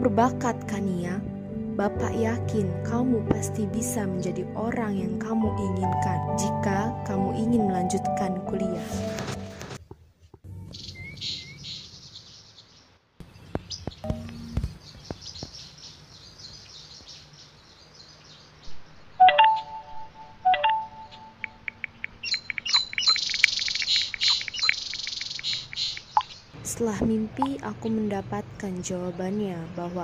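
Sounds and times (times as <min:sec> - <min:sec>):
birds chirping: 0:10.0 - 0:26.6
phone message chimes: 0:19.2 - 0:23.2
quick clicks: 0:21.4 - 0:26.3.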